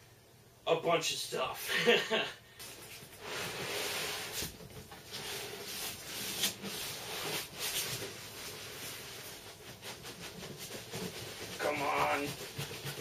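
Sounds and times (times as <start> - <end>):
cardboard scraping and rustling: 2.8 - 13.0.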